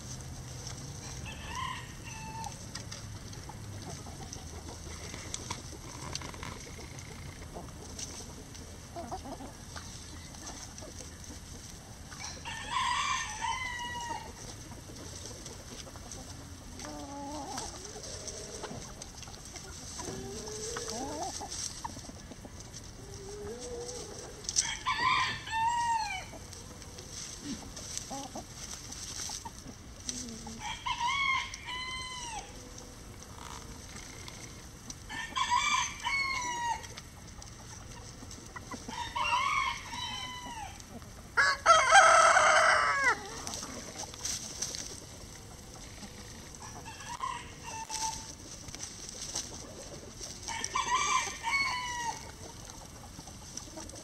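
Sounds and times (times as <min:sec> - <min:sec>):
hens clucking: 0:00.0 - 0:54.0
rooster crowing: 0:01.2 - 0:02.5, 0:12.2 - 0:14.3, 0:24.6 - 0:26.3, 0:30.6 - 0:32.5, 0:35.1 - 0:36.9, 0:38.9 - 0:40.8, 0:41.4 - 0:43.3, 0:50.5 - 0:52.3.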